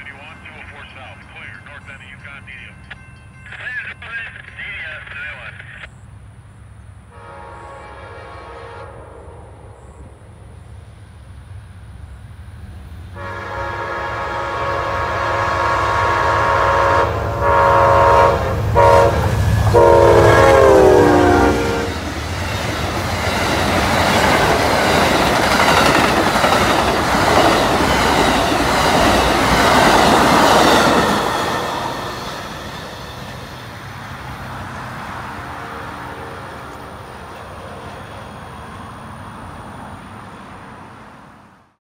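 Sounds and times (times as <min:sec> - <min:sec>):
train cars rumbling and clacking: 0:00.0 - 0:07.8, 0:09.8 - 0:41.1
train horn blasts: 0:07.1 - 0:09.8, 0:13.2 - 0:22.0, 0:35.2 - 0:36.8.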